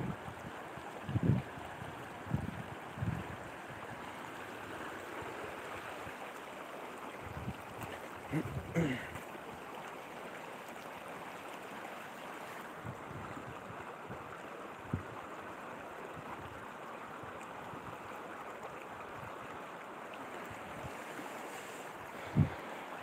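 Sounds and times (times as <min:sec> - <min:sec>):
river flowing over stones: 0:00.0 - 0:23.0.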